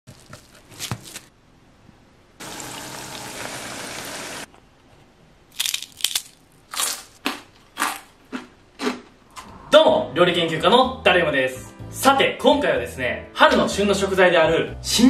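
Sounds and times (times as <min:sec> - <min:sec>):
potatoes sizzling in oil: 0:02.4 - 0:04.5
potato crushing crackle: 0:05.5 - 0:08.9
crisp potatoes bitten: 0:05.5 - 0:09.1.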